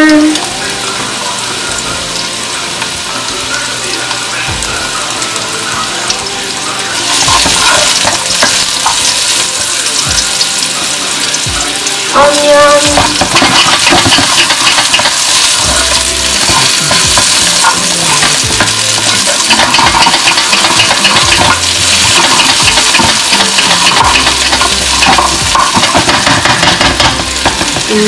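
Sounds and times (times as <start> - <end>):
aromatics sizzling in hot oil: 0.0 - 28.0
spatula scraping and tapping wok: 7.0 - 9.4, 12.2 - 28.0.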